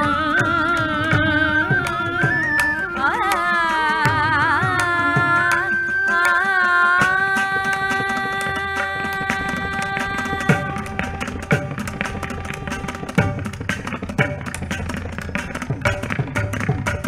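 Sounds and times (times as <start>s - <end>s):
person singing ornamented melody: 0.0s - 13.0s
percussion strokes: 0.0s - 17.0s
steady drone: 9.2s - 17.0s.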